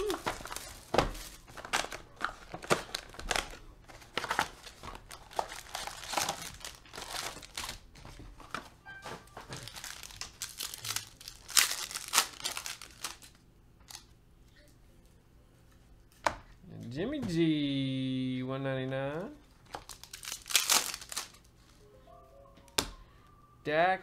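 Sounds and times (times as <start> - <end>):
foil wrappers crinkling and tearing: 0.0 - 14.1, 19.6 - 21.7.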